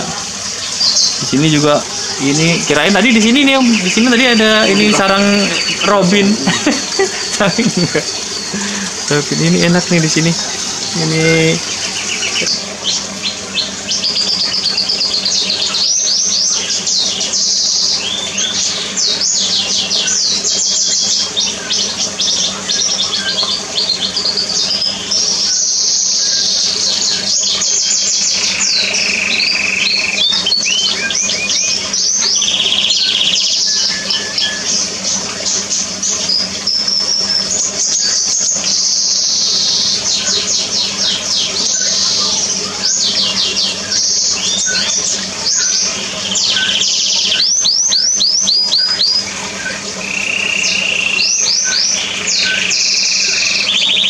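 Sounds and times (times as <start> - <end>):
steady low hum: 0.0 - 15.8
songbirds chirping and trilling: 0.0 - 54.0.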